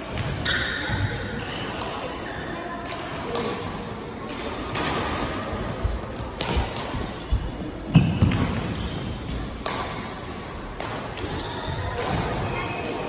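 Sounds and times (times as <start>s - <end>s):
rackets striking shuttlecock: 6.2s - 7.2s, 7.9s - 13.0s.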